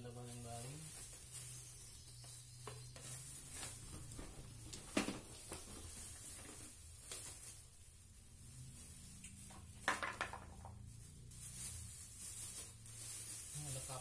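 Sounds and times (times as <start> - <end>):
plastic wrapping rustling: 0.0 - 14.0
plastic parts knocking and clattering: 4.2 - 5.8, 9.8 - 10.8.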